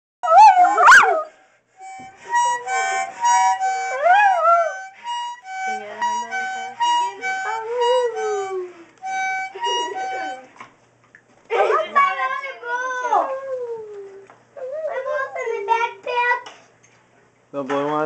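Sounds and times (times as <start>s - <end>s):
dog howling: 0.2s - 1.4s, 3.7s - 4.9s, 7.5s - 8.8s
harmonica playing: 0.3s - 10.6s.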